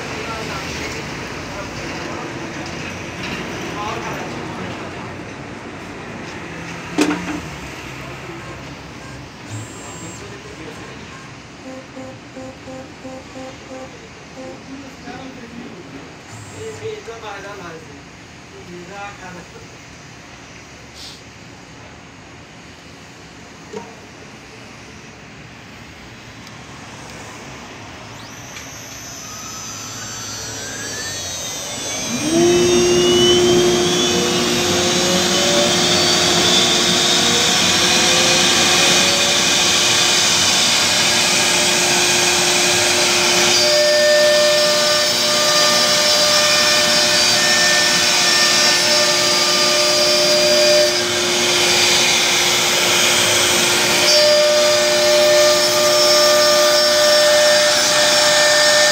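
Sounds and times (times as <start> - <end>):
router spindle whine: 6.6 - 15.5, 16.2 - 18.2, 26.2 - 58.9
router bit cutting wood: 9.4 - 10.6, 11.6 - 14.8, 16.3 - 17.0, 28.1 - 58.9.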